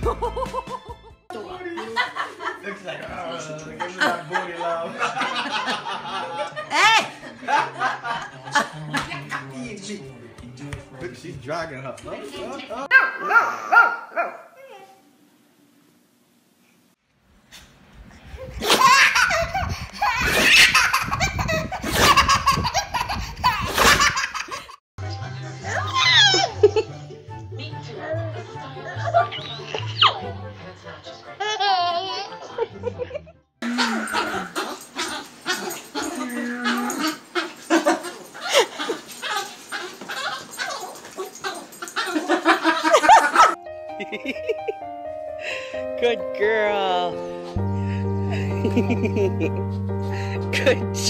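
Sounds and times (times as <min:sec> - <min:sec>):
baby belly-laughing: 0:18.6 - 0:24.6.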